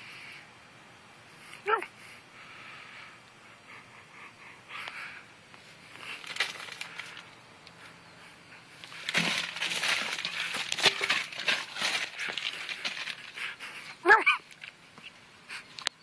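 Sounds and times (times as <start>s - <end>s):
cat scrambling clicks and scuffs: 6.0s - 7.3s, 8.8s - 13.8s
plastic bag crinkling: 6.0s - 7.3s, 8.8s - 13.6s.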